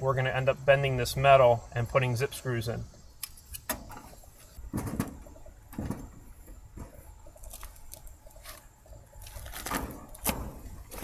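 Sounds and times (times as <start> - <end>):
light knocks and rattles on metal: 3.7 - 7.1.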